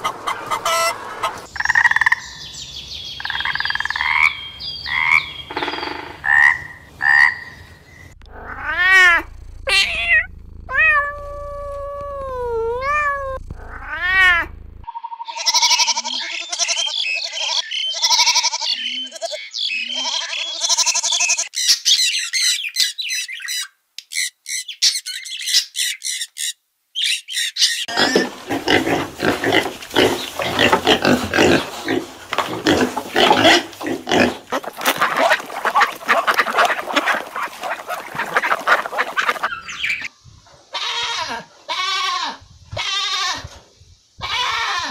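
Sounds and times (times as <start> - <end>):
geese honking: 0.0 - 2.2, 27.9 - 40.1
birds squawking and chirping: 0.0 - 8.6, 14.9 - 40.1
cat meowing: 8.4 - 14.5.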